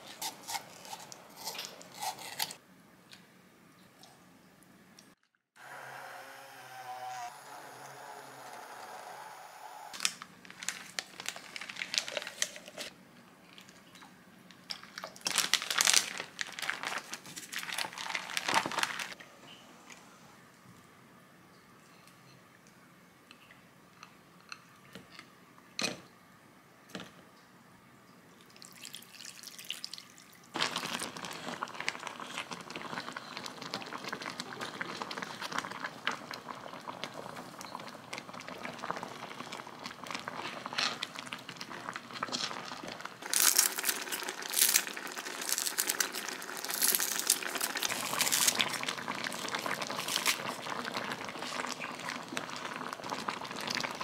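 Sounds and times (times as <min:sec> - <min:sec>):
crackles and splashes: 0:10.0 - 0:19.2, 0:28.5 - 0:54.0
stew bubbling and sizzling: 0:28.5 - 0:54.0.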